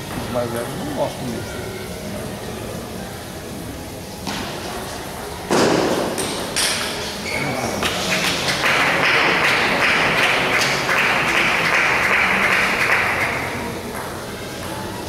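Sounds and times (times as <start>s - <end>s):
spectators applauding: 7.7s - 13.8s.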